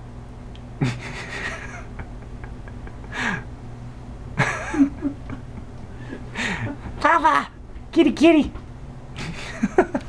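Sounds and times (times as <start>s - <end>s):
steady low hum: 0.0s - 10.0s
person chuckling: 0.8s - 3.5s, 4.4s - 6.9s, 9.2s - 10.0s.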